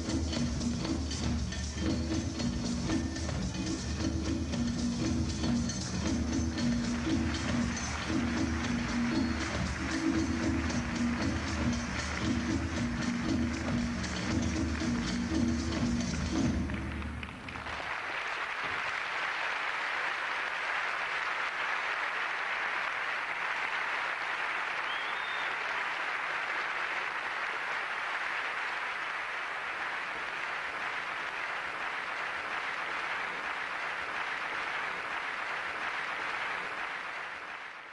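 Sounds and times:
music: 0.0s - 17.9s
audience applauding: 5.0s - 37.9s.

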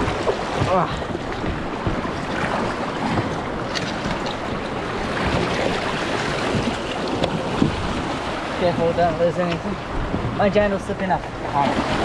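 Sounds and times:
water splashes: 0.0s - 12.0s.

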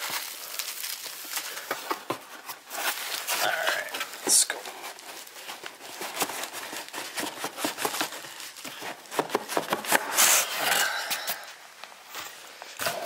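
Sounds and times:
taps and rustles: 1.3s - 10.2s
cardboard box scraping and rubbing: 4.7s - 10.7s.

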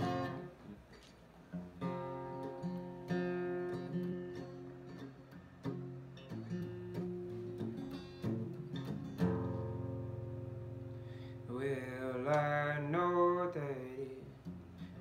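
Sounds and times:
acoustic guitar: 0.0s - 15.0s
man singing: 11.5s - 14.4s.

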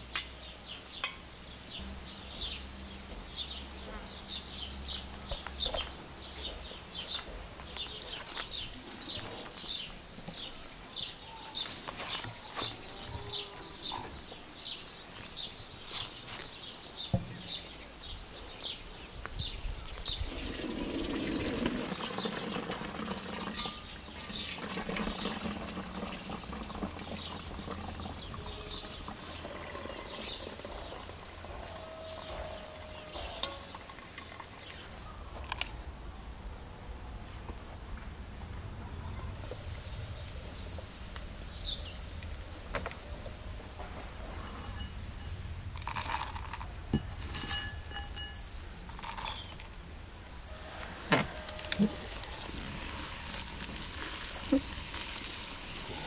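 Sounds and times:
water pouring into colander: 20.3s - 31.2s, 50.6s - 56.0s.

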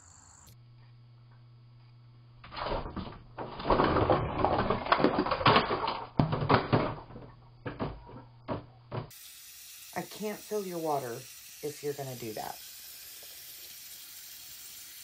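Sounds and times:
long-handled item falling: 2.5s - 9.1s
household items clattering: 2.8s - 9.1s.

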